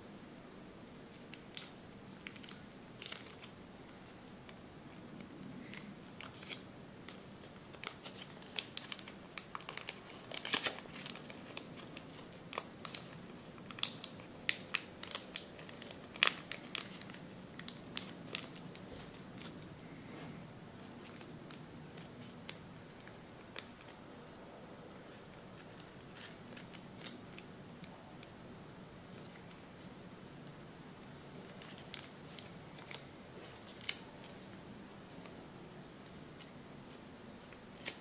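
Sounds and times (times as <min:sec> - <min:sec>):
paper crinkling and crackling: 0:01.1 - 0:19.7, 0:25.1 - 0:28.3, 0:31.4 - 0:35.4, 0:36.4 - 0:38.0.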